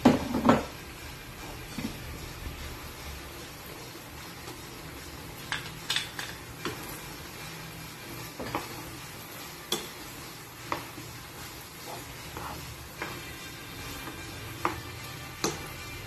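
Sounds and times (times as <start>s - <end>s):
frying pan sizzling: 0.0s - 16.0s
spatula stirring pasta: 2.8s - 16.0s.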